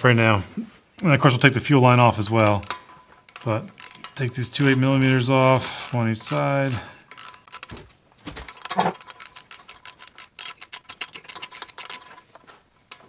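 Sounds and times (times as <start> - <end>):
ratcheting wrench clicking: 2.4 - 7.8, 8.5 - 12.2.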